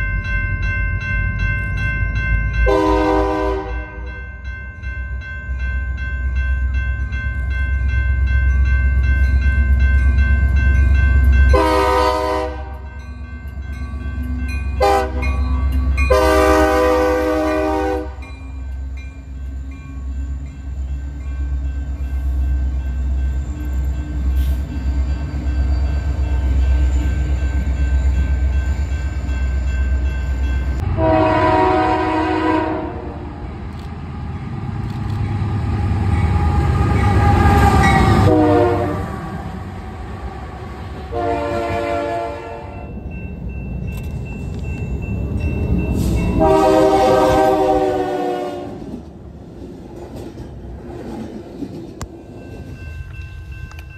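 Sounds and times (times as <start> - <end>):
heavy rumble of engines and wheels: 0.0 - 53.9
train air horn blasts: 2.7 - 4.1, 11.5 - 12.9, 14.8 - 15.3, 16.1 - 18.2, 30.8 - 33.2, 36.6 - 39.4, 41.1 - 42.8, 46.4 - 48.9.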